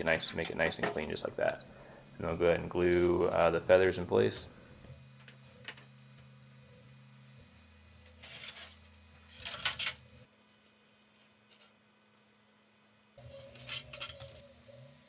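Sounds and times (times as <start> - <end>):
faint steady hum: 0.0 - 15.0
plastic parts clattering: 13.5 - 14.4.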